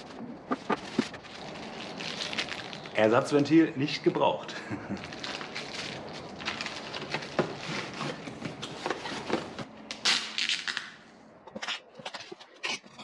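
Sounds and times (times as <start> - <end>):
plastic packaging crinkling: 0.8 - 3.2, 5.0 - 11.0.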